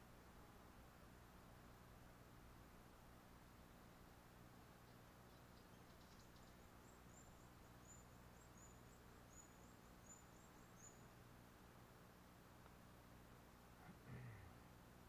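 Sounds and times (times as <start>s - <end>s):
low steady hum: 0.0s - 15.0s
small bird chirping: 4.8s - 11.3s.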